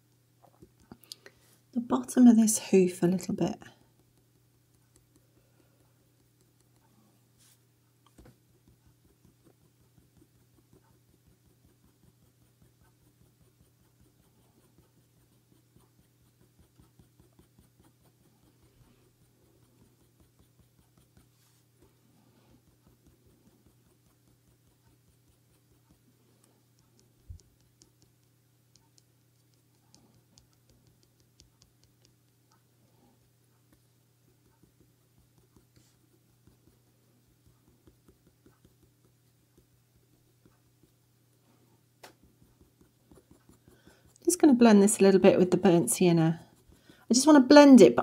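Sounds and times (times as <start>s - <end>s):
pencil scratching on paper: 8.2s - 32.6s, 33.7s - 41.1s, 42.2s - 48.0s.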